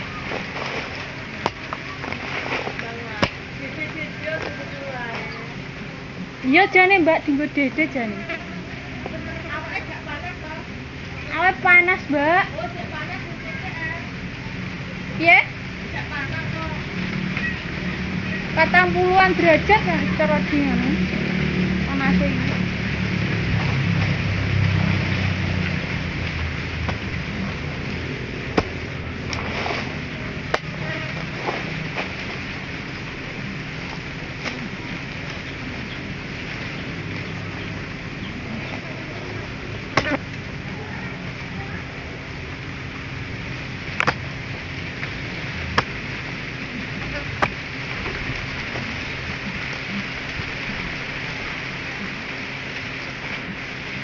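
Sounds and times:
outdoor hiss: 0.0 - 54.0
hoe striking ground: 39.9 - 40.3, 44.0 - 44.3, 45.7 - 46.0
hand tool striking ground: 44.0 - 44.3.

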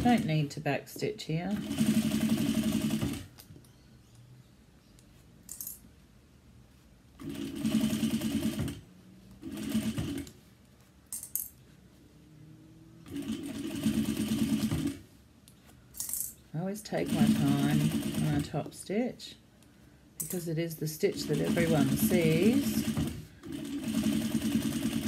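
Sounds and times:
sewing machine stitching: 1.6 - 3.3, 7.2 - 8.8, 9.4 - 10.4, 13.1 - 15.0, 16.9 - 18.6, 20.9 - 25.0.

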